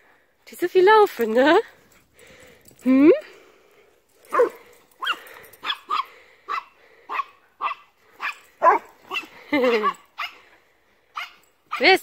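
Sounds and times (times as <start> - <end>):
dogs barking: 4.3 - 10.5.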